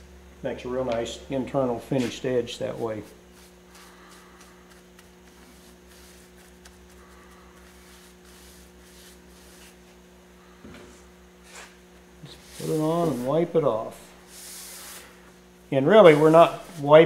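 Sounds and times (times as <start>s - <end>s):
low electrical hum: 0.0s - 17.0s
paper towel rubbing: 3.3s - 9.8s, 12.2s - 13.6s, 14.2s - 15.2s, 16.0s - 17.0s.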